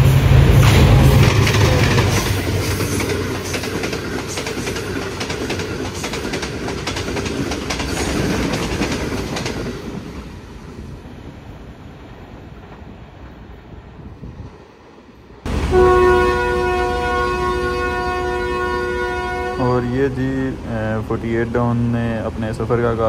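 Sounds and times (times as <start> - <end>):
train wheels clacking over rail joints: 0.0 - 10.3
train low rumble: 0.0 - 23.0.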